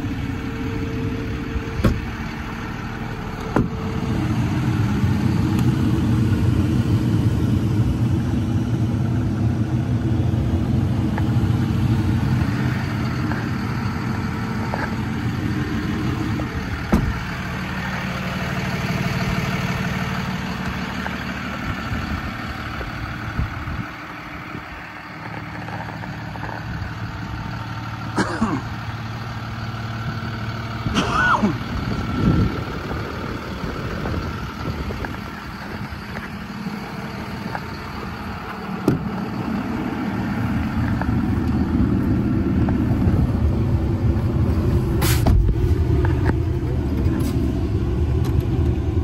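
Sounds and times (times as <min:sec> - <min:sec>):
diesel engine idling: 0:00.0 - 0:49.0.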